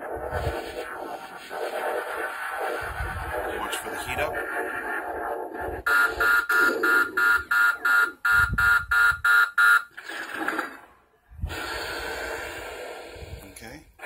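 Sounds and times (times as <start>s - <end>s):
rapid electronic beeping: 3.4s - 9.8s.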